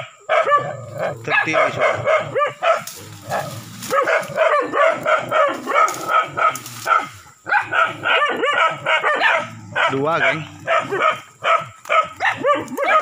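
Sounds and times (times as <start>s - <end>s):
dogs barking and yelping: 0.0s - 13.0s.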